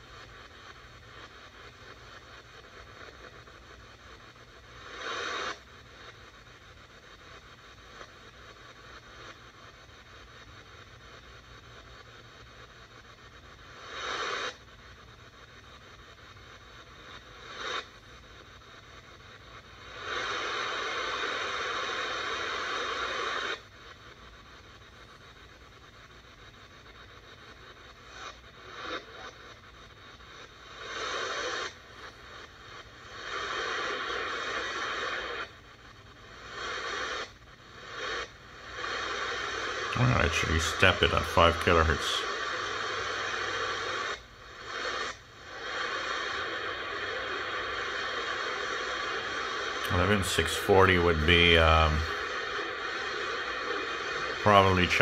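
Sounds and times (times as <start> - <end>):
radio static hiss: 0.0 - 55.0
noisy radio signal bursts: 19.1 - 55.0.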